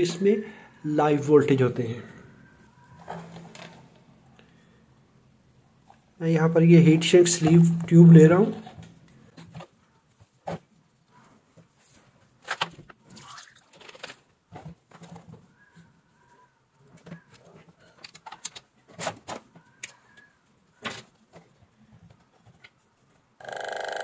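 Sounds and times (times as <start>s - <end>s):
plastic tube and pump handled: 11.5s - 15.9s
air pump electromagnetic buzz: 23.4s - 24.0s.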